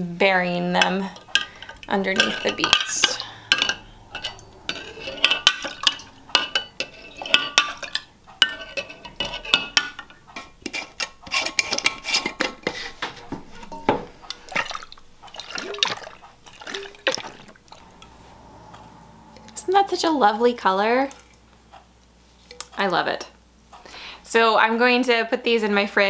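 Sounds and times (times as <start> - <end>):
glass jar clinking: 1.3 - 10.1, 13.6 - 18.1
liquid splashing in jar: 14.3 - 17.8
brine sloshing in jar: 14.3 - 18.1.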